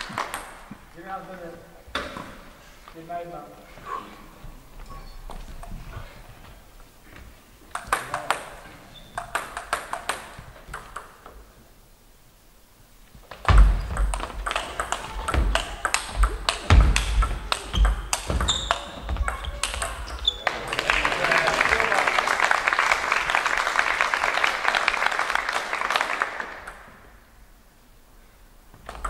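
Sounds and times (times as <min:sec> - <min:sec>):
table tennis ball bouncing: 0:00.0 - 0:00.7, 0:07.7 - 0:11.4, 0:13.3 - 0:21.0
table tennis rally clicks: 0:00.0 - 0:00.7, 0:07.7 - 0:11.4, 0:13.2 - 0:21.5, 0:26.4 - 0:27.1
heavy thumps: 0:13.2 - 0:20.1.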